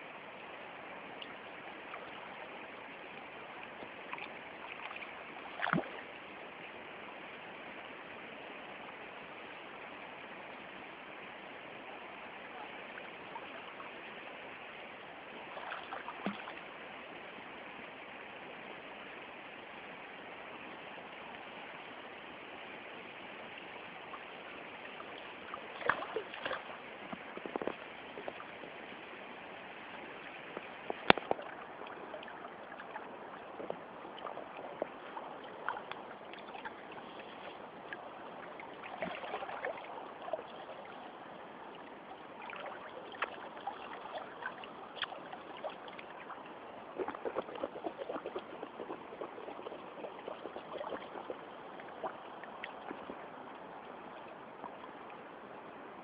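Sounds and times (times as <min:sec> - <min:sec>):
water splashes: 0:01.0 - 0:06.6, 0:12.1 - 0:17.4, 0:23.2 - 0:56.0
river water rushing: 0:31.2 - 0:54.6.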